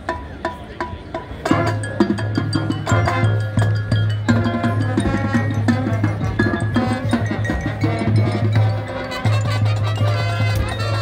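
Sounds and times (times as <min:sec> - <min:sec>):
mallet keyboard notes: 0:00.0 - 0:11.0
rhythmic percussion: 0:00.0 - 0:11.0.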